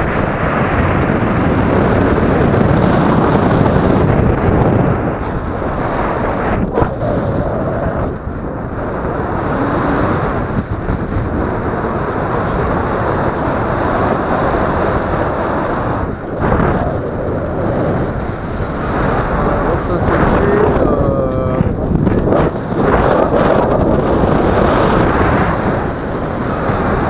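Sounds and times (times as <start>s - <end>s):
wind rushing over microphone: 0.0s - 27.0s.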